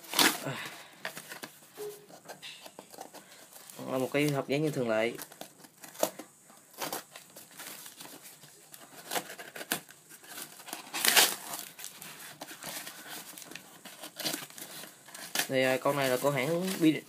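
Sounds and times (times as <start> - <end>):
cardboard tearing rip: 0.0 - 0.5, 5.1 - 8.1, 8.9 - 16.9
cardboard and tape crinkling: 0.0 - 17.0.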